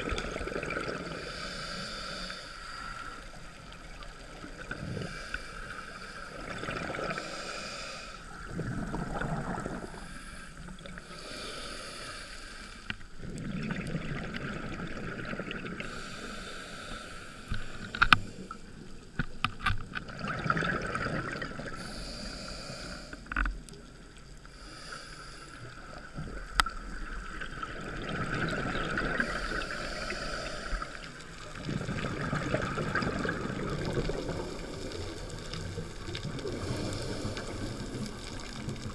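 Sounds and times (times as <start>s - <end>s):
regulator bubbles rushing underwater: 0.0s - 2.2s, 2.8s - 7.5s, 8.3s - 11.3s, 13.0s - 16.2s, 17.6s - 22.0s, 25.7s - 38.9s.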